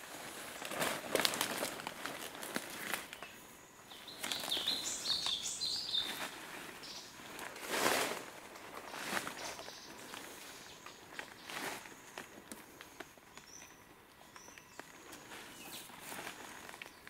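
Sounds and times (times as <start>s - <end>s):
rustling in leaf litter: 0.0s - 17.0s
small bird chirping: 3.1s - 7.2s, 8.8s - 12.2s, 13.3s - 17.0s.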